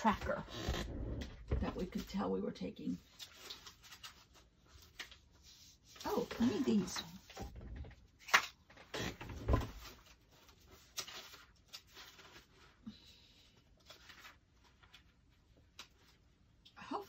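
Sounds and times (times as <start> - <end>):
papers rustling: 3.0 - 12.8.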